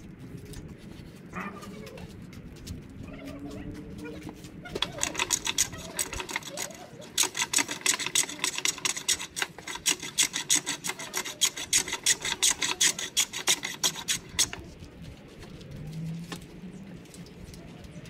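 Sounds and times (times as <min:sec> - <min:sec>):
hand plane rasping on wood: 0:04.8 - 0:14.6.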